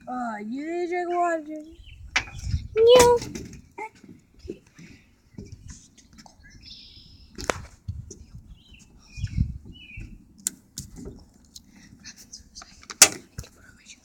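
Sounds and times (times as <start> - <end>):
wind and handling rumble: 0.0 - 14.0
faint bird chirps: 5.2 - 7.4, 8.4 - 10.2.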